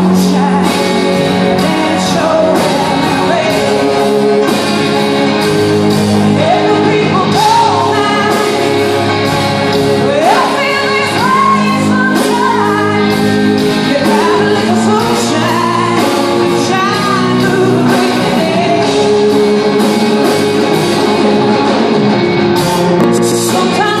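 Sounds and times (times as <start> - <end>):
live rock band playing: 0.0 - 24.0
woman singing long sliding notes: 6.2 - 20.1.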